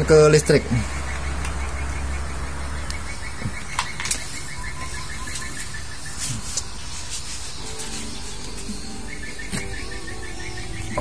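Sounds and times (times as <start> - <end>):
steady outdoor noise: 0.0 - 11.0
bird chirping rapidly: 1.0 - 11.0
low hum: 4.1 - 11.0.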